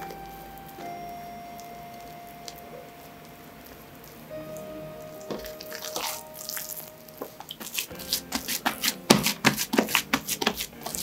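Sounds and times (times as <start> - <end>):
hands patting soft dough: 7.2 - 11.0.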